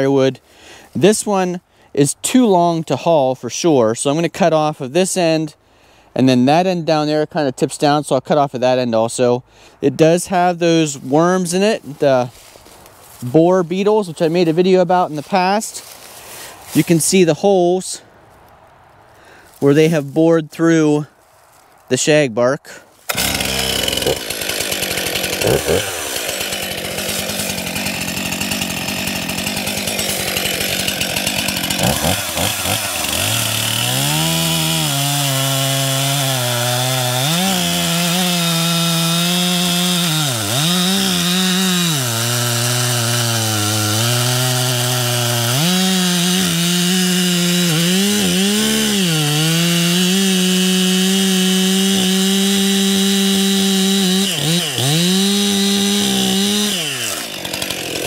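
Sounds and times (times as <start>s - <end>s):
chainsaw cutting log: 10.0s - 17.2s, 23.0s - 58.0s.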